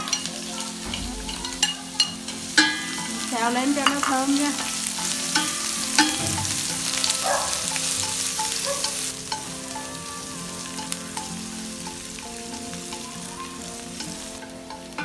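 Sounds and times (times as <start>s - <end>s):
chopsticks ticking against pot: 0.0s - 10.0s
aromatics sizzling in hot oil: 0.0s - 15.0s.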